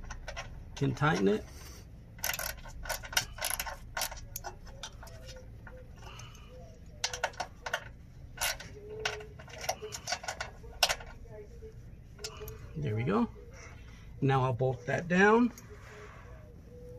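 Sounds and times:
hand ratchet clicking: 2.2 - 6.3, 7.0 - 11.2.

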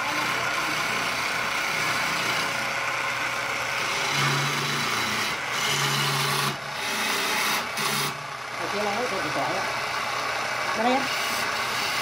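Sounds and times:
lathe motor hum: 0.0 - 12.0.

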